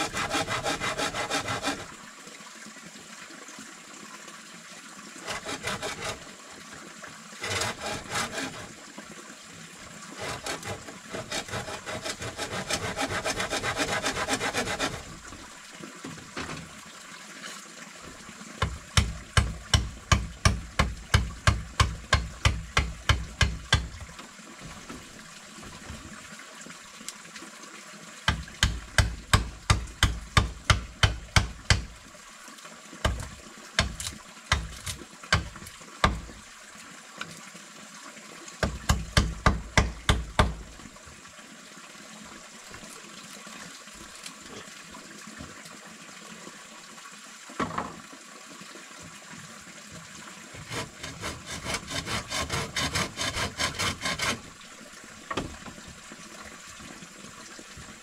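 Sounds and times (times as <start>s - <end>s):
hand saw cutting wood: 0.0s - 2.0s, 5.2s - 6.4s, 7.4s - 8.8s, 10.2s - 15.3s, 18.6s - 23.9s, 28.3s - 31.9s, 33.0s - 36.4s, 38.6s - 40.7s, 50.5s - 54.6s.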